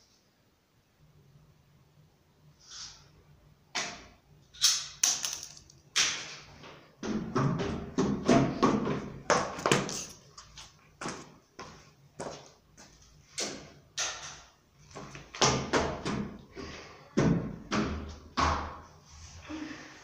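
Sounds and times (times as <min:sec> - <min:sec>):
footsteps on hard floor: 0:07.4 - 0:13.0.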